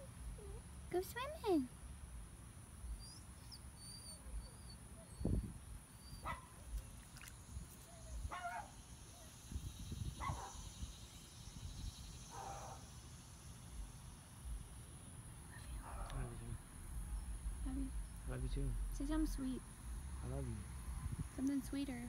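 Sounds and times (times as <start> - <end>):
small dog whining yips: 3.0 - 6.6.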